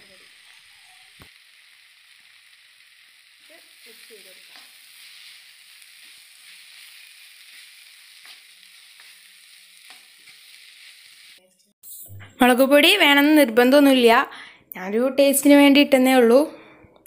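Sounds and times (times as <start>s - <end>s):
onions sizzling in oil: 0.0s - 14.2s.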